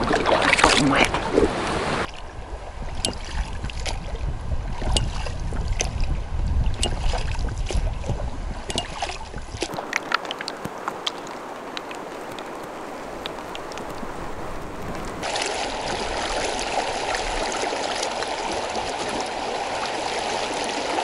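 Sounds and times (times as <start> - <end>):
river water running: 0.0 - 21.0
wind on microphone: 0.0 - 21.0
small splashes: 6.8 - 21.0.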